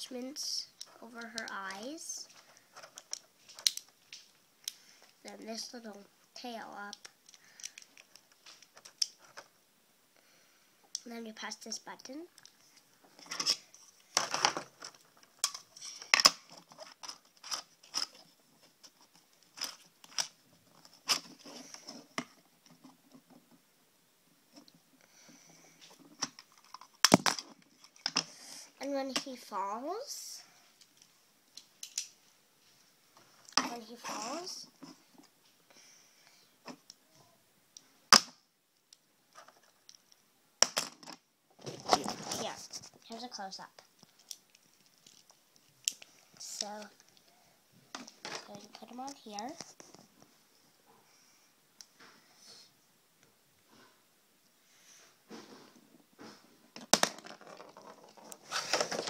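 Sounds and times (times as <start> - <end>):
plastic packaging rustling: 41.6 - 43.3, 57.2 - 59.0.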